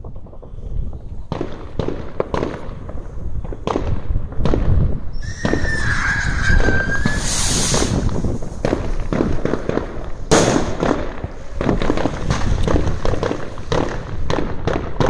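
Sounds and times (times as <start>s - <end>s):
fireworks bangs: 0.0s - 15.0s
whistling firework: 3.0s - 15.0s.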